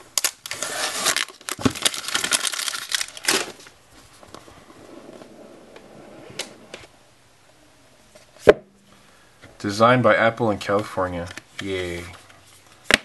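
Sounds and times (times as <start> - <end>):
plastic shrink-wrap crinkling: 0.2 - 3.8.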